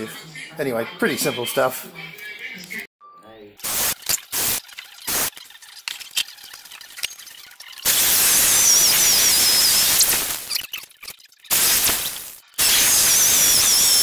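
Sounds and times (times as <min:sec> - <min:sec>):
electric drill hole saw boring wood: 0:07.8 - 0:10.6, 0:11.5 - 0:14.0
cordless drill burst: 0:07.9 - 0:10.5, 0:11.5 - 0:14.0.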